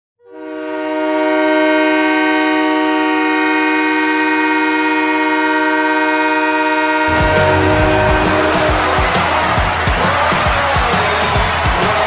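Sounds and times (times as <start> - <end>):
goal horn chord: 5.4 - 10.6.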